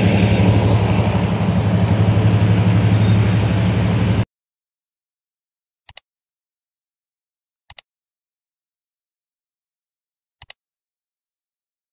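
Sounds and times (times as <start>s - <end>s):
train running noise: 0.0s - 4.3s.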